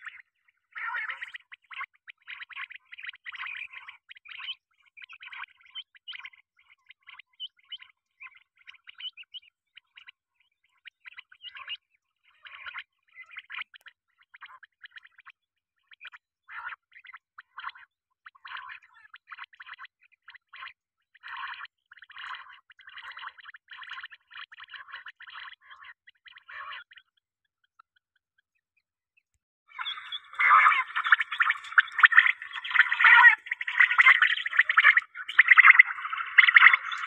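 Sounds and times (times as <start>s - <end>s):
quail calling in rattling bursts: 29.8s - 36.9s.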